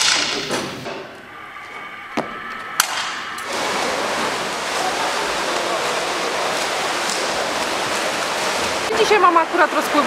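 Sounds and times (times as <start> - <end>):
swimming pool water washing: 3.0 - 10.0.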